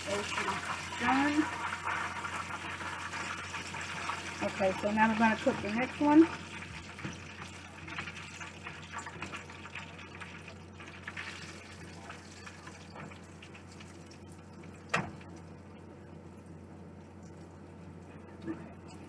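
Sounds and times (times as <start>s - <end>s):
oil sizzling in a skillet: 0.0s - 14.8s.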